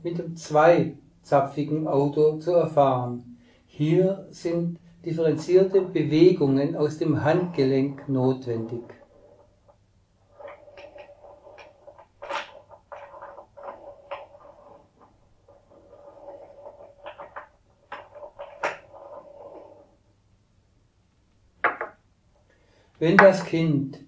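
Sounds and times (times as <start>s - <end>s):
wooden toy pegs scraping and clicking: 7.2s - 20.0s
toy car knocking on table: 21.6s - 22.0s.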